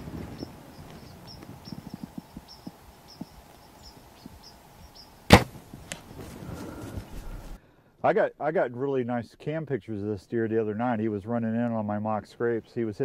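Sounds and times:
faint insect chirps: 0.1 - 5.3
bow shot crack: 5.3 - 6.1.

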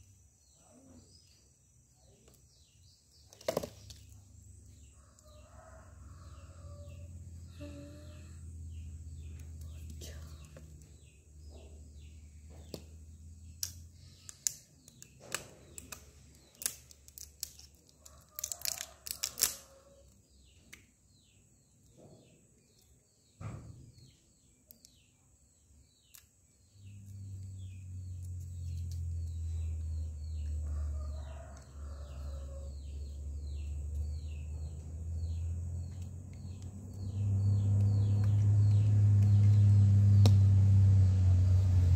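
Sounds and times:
plastic bottles and packaging handled: 3.2 - 4.2
low steady rumble: 5.8 - 14.2, 32.4 - 41.9.

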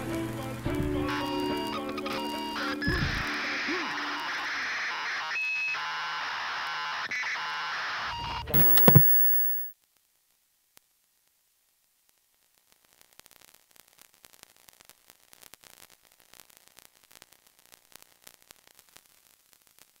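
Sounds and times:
faint crackling static: 8.6 - 20.0.

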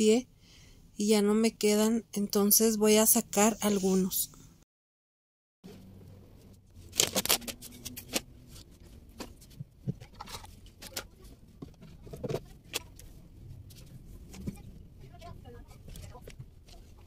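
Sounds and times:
rustling of clothes and plastic: 6.5 - 17.0
objects clicking and knocking: 9.1 - 13.1.

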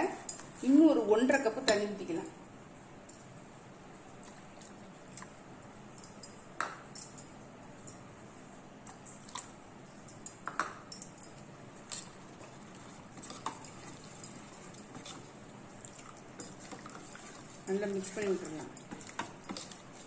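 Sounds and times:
spoon clinking against metal pot: 16.4 - 20.0.

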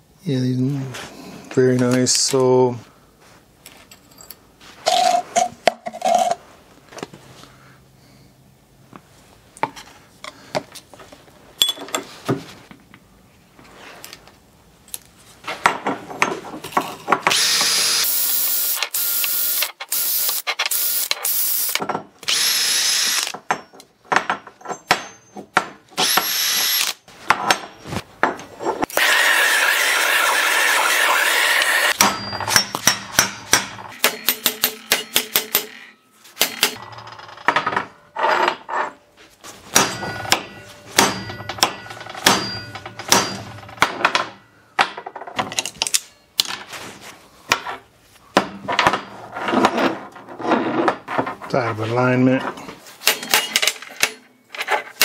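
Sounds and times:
metal parts clinking: 3.7 - 6.4.

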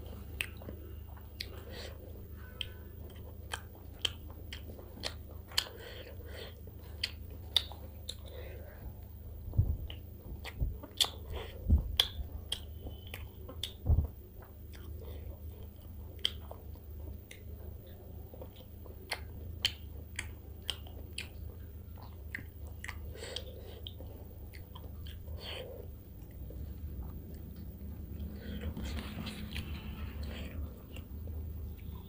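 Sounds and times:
steady low hum: 0.0 - 32.0
close chewing with wet mouth clicks: 0.1 - 32.0
low thumps: 9.5 - 9.9, 13.8 - 14.2.

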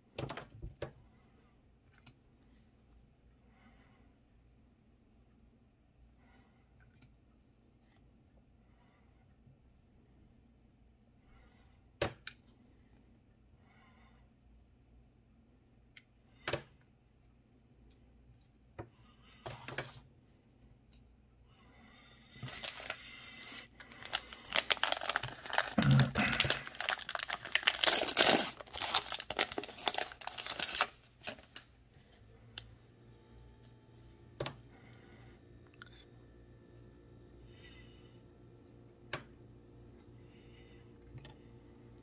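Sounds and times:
foil wrapper crinkling and tearing: 22.4 - 31.7.

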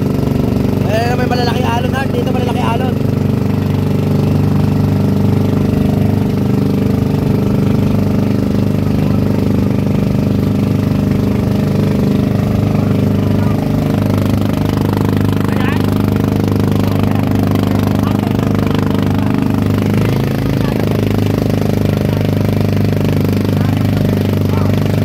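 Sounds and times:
boat engine droning: 0.0 - 25.0.

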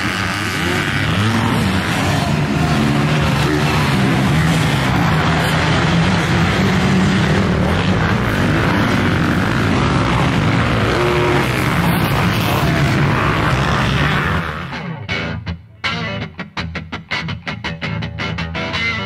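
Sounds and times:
motocross engines revving: 0.0 - 15.1.

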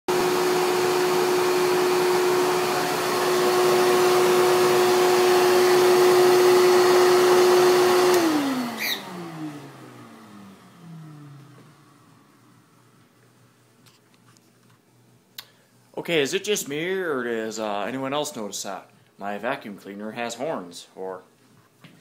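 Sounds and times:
vacuum cleaner whine: 0.1 - 13.1.

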